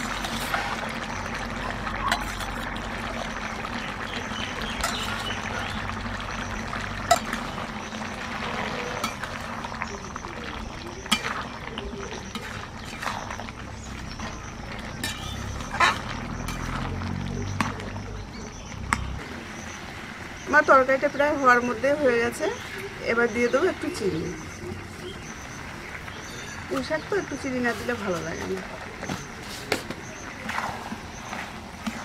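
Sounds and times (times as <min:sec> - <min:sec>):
spatula stirring wet curry: 0:00.0 - 0:19.2
curry simmering hiss: 0:00.0 - 0:32.0
metal spatula clinking on pan: 0:15.0 - 0:16.7.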